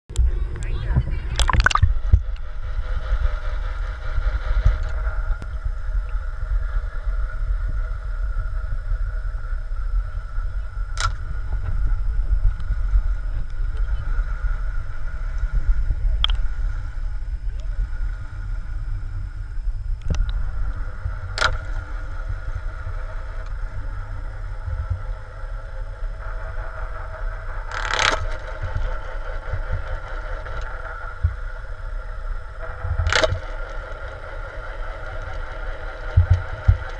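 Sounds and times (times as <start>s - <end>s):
faint hum: 0.1s - 36.9s
underwater low rumble: 0.1s - 36.9s
sharp underwater clicks: 1.3s - 2.5s, 10.9s - 11.3s, 16.2s - 16.5s, 20.0s - 20.4s, 21.3s - 21.8s, 27.7s - 28.7s, 33.0s - 33.7s.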